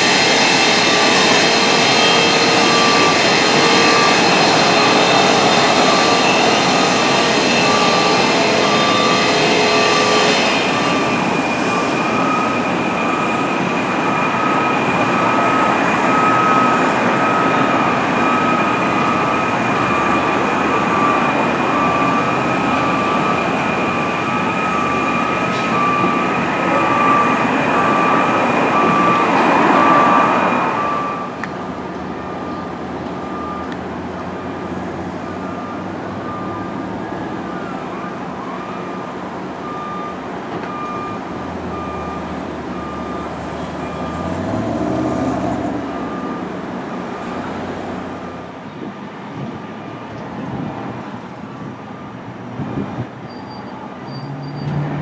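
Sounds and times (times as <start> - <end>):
high steady whine: 0.0 - 44.4
machinery and traffic noise: 0.0 - 55.0
electronic beep: 0.6 - 31.5.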